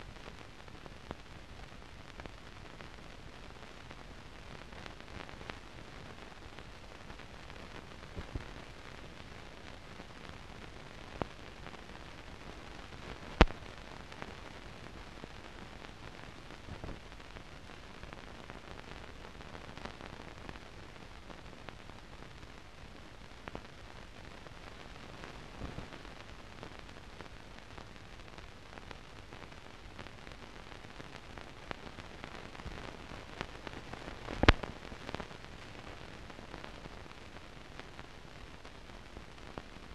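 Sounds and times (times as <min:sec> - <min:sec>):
film hiss with clicks and pops: 0:00.0 - 0:39.9.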